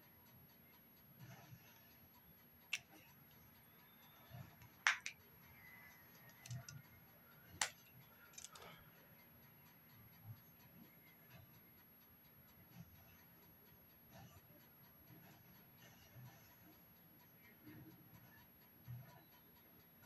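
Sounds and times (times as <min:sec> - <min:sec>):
makeup items clicking and tapping: 0:04.6 - 0:05.2, 0:08.4 - 0:08.6.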